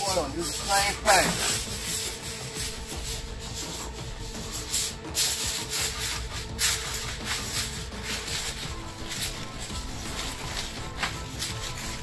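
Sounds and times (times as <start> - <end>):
aluminium foil crinkling: 0.0 - 12.0.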